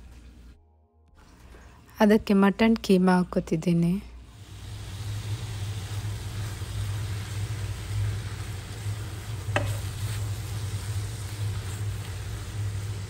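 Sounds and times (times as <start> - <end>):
food sizzling in a pan: 4.2 - 13.0
wooden spatula stirring: 9.4 - 12.6.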